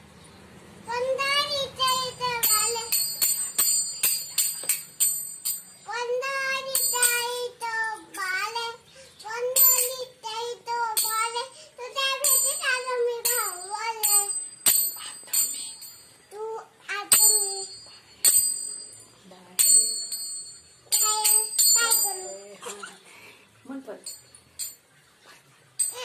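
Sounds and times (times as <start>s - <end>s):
child singing: 0.9s - 3.2s, 5.9s - 14.4s, 16.3s - 17.8s, 20.9s - 22.5s
small hand cymbals struck: 1.8s - 7.4s, 9.5s - 10.1s, 10.9s - 16.2s, 17.1s - 22.4s, 24.0s - 24.8s, 25.8s - 26.0s.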